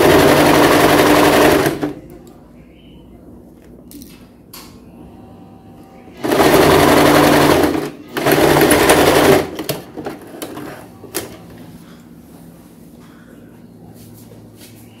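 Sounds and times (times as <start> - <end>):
sewing machine stitching: 0.0 - 2.0, 6.2 - 10.9.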